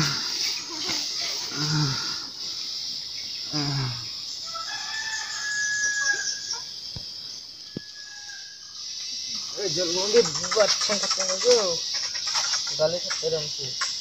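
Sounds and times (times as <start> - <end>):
rooster crowing: 4.4 - 6.7, 7.7 - 8.6.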